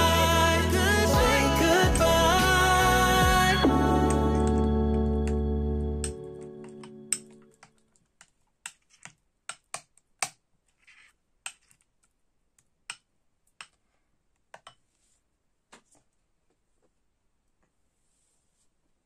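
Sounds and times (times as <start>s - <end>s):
background music: 0.0s - 7.7s.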